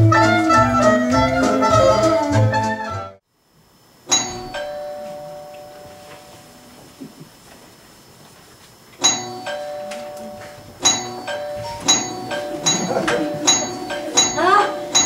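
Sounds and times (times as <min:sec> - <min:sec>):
jazz music: 0:00.0 - 0:03.2
two-note door chime: 0:09.0 - 0:15.0.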